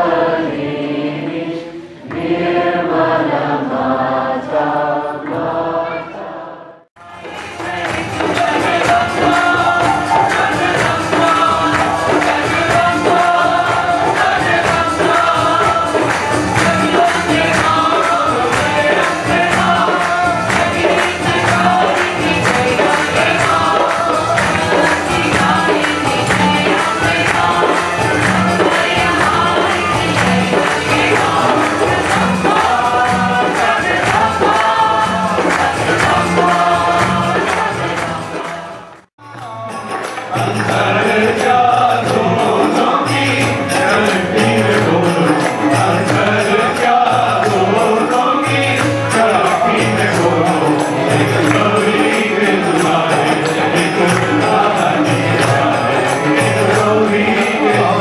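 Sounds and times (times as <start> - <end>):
group singing devotional song: 0.0 - 58.0
steady percussion beat: 7.0 - 58.0.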